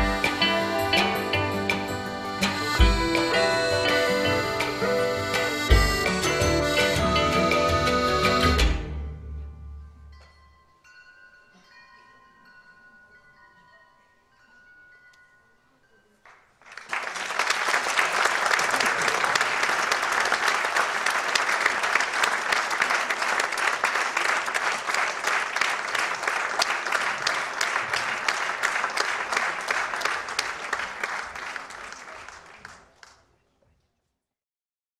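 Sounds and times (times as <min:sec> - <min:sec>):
audience applauding: 0:16.3 - 0:33.5.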